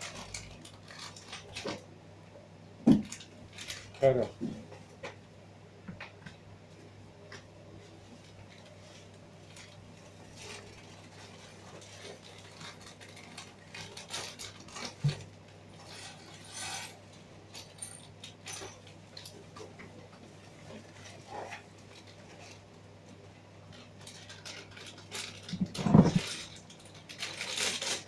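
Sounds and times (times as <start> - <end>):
plastic bags crinkling: 0.0 - 1.9, 3.0 - 4.3, 8.1 - 16.8, 23.6 - 28.0.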